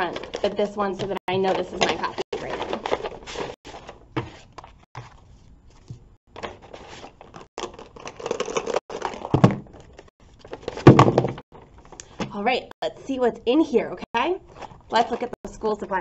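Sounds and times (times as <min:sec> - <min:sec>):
paper and plastic rustling: 0:00.0 - 0:12.0.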